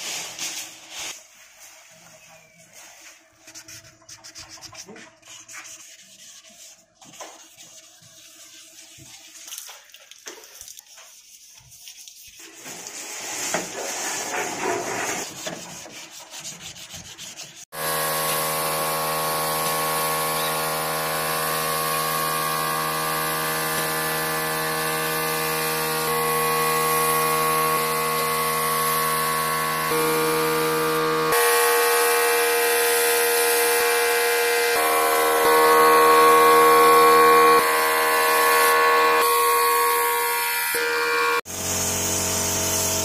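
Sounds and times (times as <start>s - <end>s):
sanding on car body panel: 3.0s - 9.6s, 10.8s - 34.1s
paint spray gun hissing: 17.8s - 25.8s, 41.5s - 43.0s.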